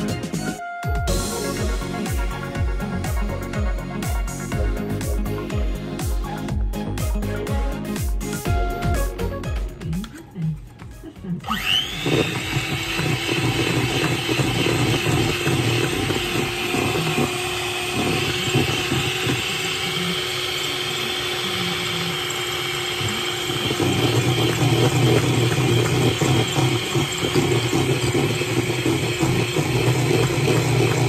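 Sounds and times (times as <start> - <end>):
hand mixer motor whine: 11.4 - 31.0.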